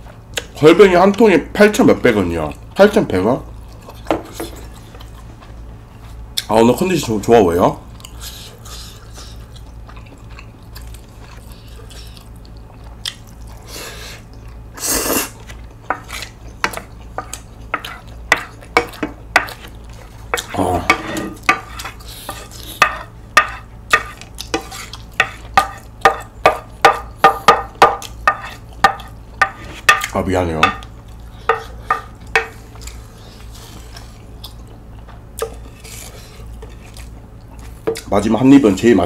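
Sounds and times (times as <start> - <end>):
chewing: 3.5 - 6.5, 7.9 - 26.4, 30.8 - 38.1
wooden spoon scraping a bowl: 20.9 - 27.0, 27.8 - 30.0.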